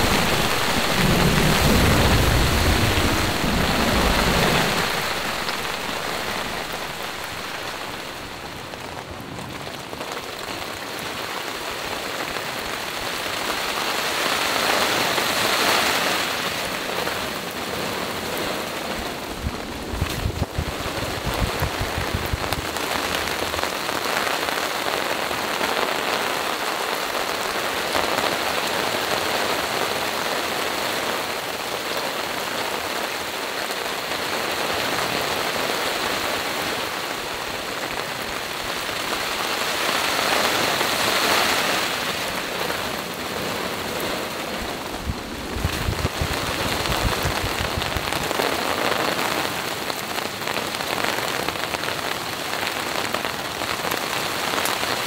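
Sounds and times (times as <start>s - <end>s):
low rumble: 0.0s - 8.4s, 19.4s - 23.6s, 44.9s - 48.2s
rain falling on a tarp: 0.0s - 55.0s.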